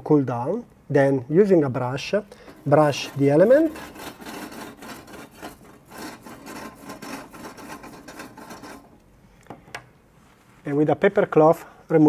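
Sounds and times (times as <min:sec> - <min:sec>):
brush scrubbing heating element: 0:02.5 - 0:09.0.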